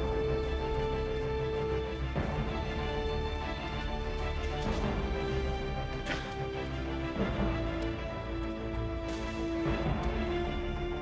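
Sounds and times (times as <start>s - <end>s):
film score long held notes: 0.0s - 11.0s.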